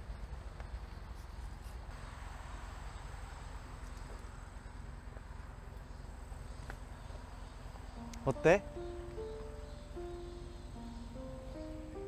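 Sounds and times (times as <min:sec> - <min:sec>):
insects chirring: 0:03.9 - 0:12.0.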